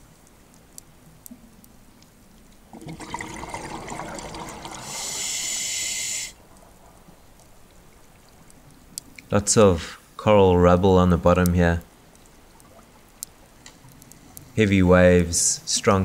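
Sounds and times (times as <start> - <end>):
regulator bubbling rush: 2.7 - 8.5
regulator high hiss: 4.8 - 6.4
faint clicks: 6.5 - 9.3, 11.4 - 14.6.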